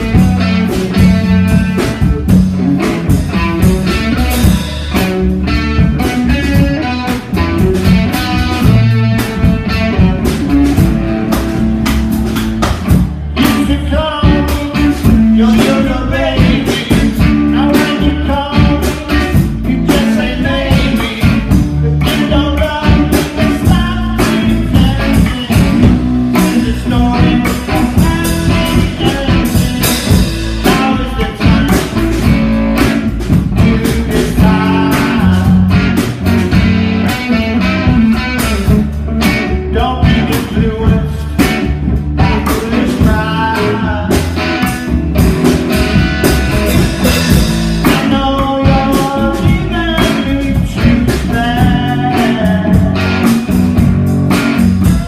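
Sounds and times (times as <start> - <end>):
live rock and roll band: 0.0 - 55.0.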